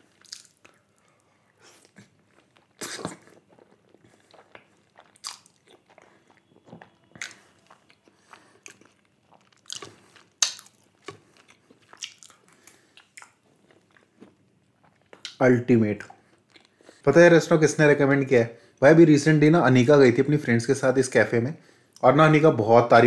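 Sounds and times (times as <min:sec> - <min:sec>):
person chewing food: 0:00.0 - 0:15.4, 0:16.1 - 0:17.0.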